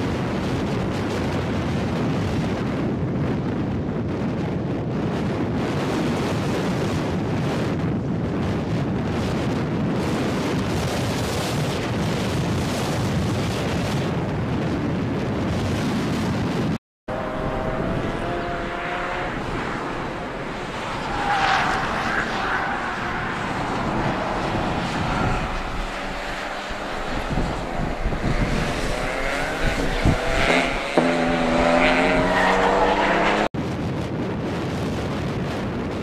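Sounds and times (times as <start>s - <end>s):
wind buffeting microphone: 0.0s - 36.0s
cars driving past: 17.1s - 33.5s.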